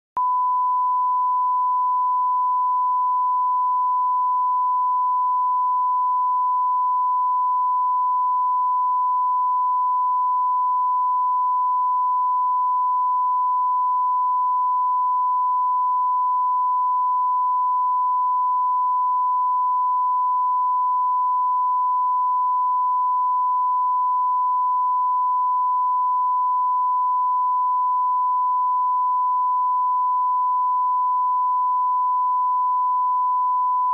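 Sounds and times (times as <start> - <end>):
steady pure test tone beep: 0.1 - 33.9.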